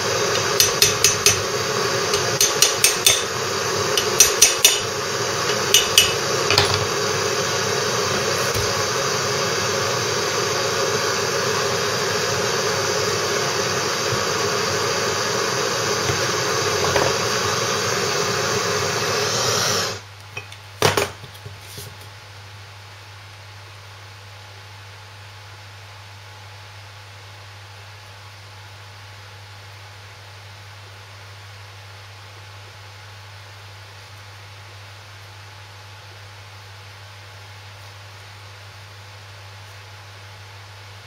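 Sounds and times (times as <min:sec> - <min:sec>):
loud steady hiss: 0:00.0 - 0:20.1
hammer tapping metal: 0:00.3 - 0:06.8.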